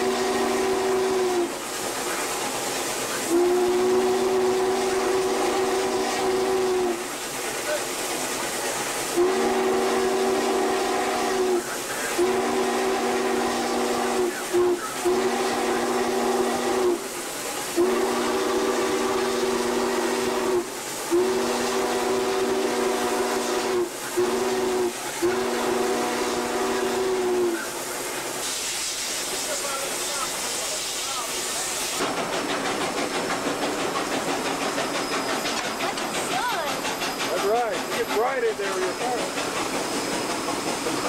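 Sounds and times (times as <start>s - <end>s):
steam whistle blasts: 0.0s - 1.6s, 3.2s - 7.1s, 9.1s - 17.1s, 17.7s - 27.8s
steam hiss: 0.0s - 41.0s.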